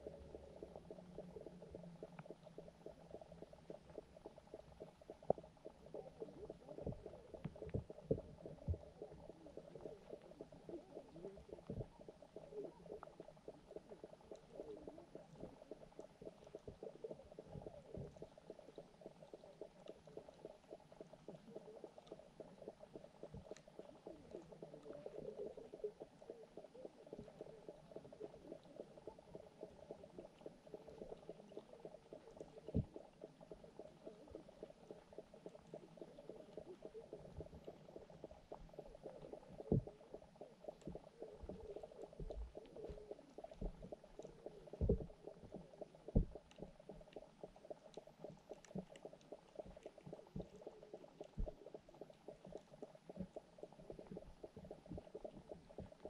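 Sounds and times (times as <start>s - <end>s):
underwater gurgling murmur: 0.0s - 56.0s.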